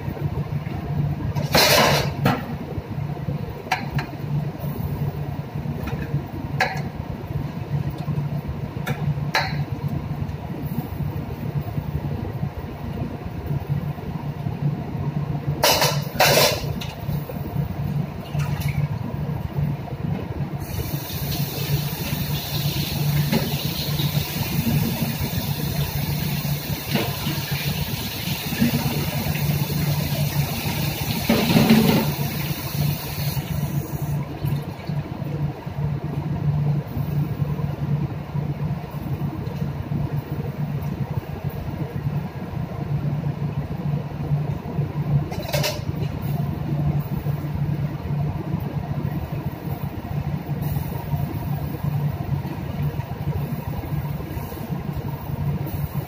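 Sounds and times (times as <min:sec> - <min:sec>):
low machinery hum: 0:00.0 - 0:56.0
hiss: 0:20.6 - 0:34.2, 0:54.3 - 0:54.8.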